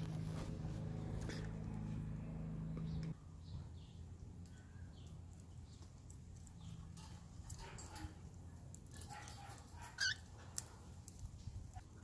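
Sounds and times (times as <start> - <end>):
low hum: 0.0 - 7.5.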